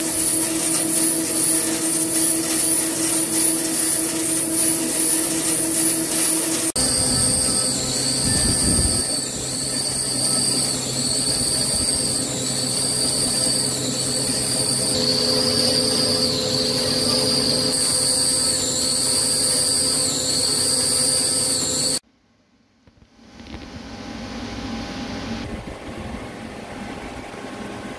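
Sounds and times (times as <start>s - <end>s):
coolant spraying: 0.0s - 6.8s
lathe cutting steel with high whine: 0.0s - 22.0s.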